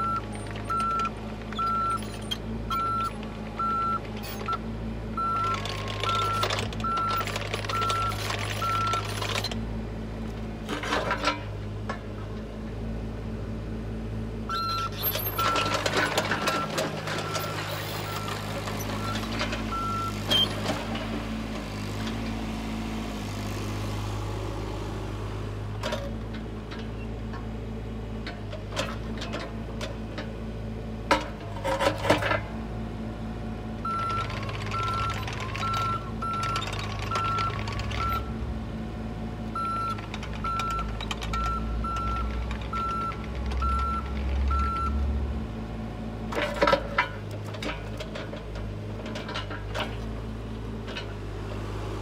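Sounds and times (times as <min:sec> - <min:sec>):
diesel engine running: 0:00.0 - 0:52.0.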